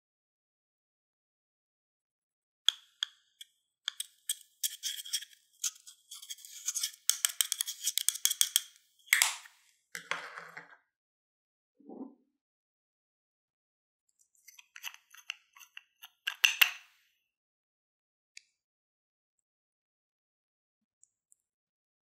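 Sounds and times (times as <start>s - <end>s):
metal pick scraping eyeshadow: 3.9s - 8.8s.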